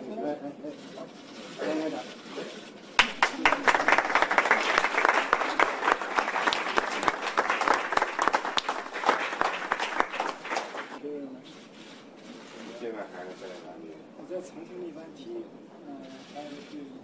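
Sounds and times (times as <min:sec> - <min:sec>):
group of people applauding: 0:03.0 - 0:11.0.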